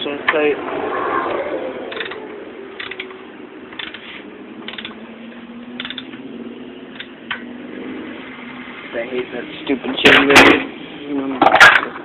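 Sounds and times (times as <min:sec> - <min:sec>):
ratchet wrench clicking: 0:01.9 - 0:02.2, 0:02.8 - 0:04.0, 0:04.6 - 0:05.0, 0:05.8 - 0:06.2, 0:06.9 - 0:07.1.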